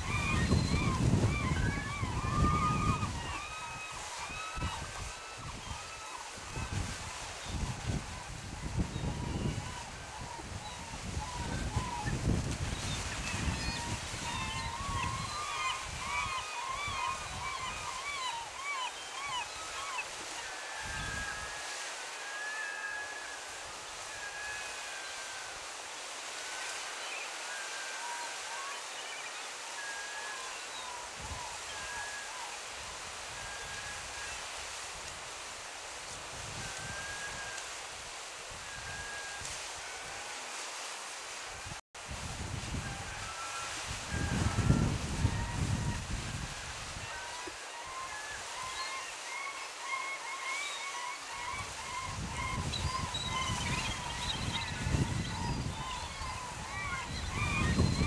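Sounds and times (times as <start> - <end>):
faint high-pitched calls: 0.0 - 12.2, 12.8 - 34.8, 42.7 - 58.0
water rushing at falls: 0.0 - 58.0
birds calling: 47.1 - 58.0.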